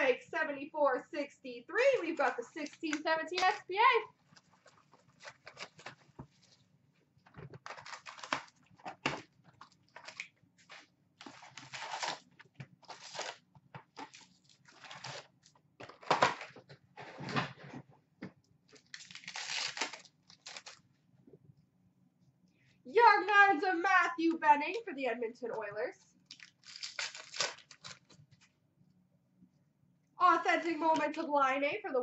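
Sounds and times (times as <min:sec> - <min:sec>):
plastic wrap tearing and crinkling: 0:04.2 - 0:06.6, 0:07.5 - 0:16.6, 0:18.7 - 0:20.8, 0:26.3 - 0:28.2.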